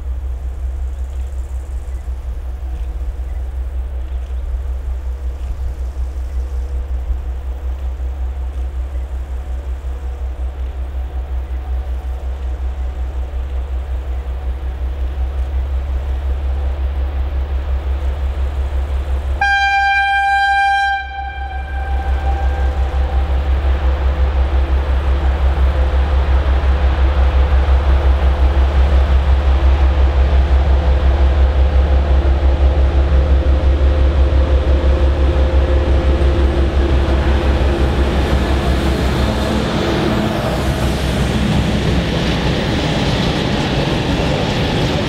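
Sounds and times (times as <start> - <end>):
diesel locomotive engine rumble: 0.0 - 45.0
train horn blast: 19.4 - 23.6.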